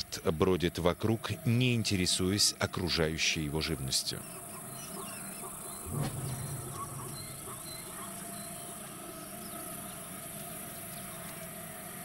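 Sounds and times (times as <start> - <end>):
insect hum: 0.0 - 12.0
small birds chirping: 3.7 - 11.7
low rumble: 5.8 - 8.4.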